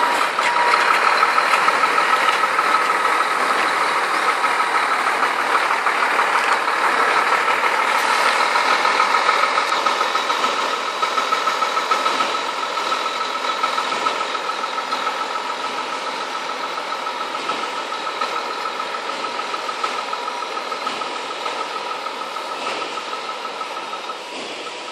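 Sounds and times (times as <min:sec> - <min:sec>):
diesel truck engine idling: 0:00.0 - 0:24.9.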